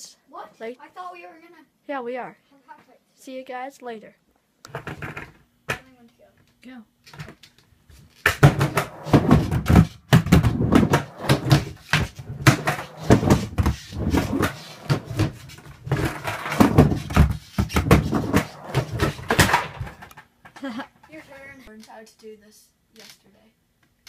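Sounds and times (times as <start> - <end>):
board knocking on concrete floor: 8.2 - 20.6.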